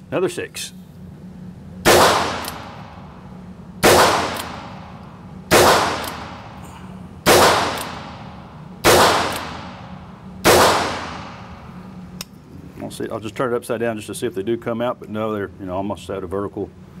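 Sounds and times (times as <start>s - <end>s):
revolver shots echoing indoors: 1.7s - 12.4s.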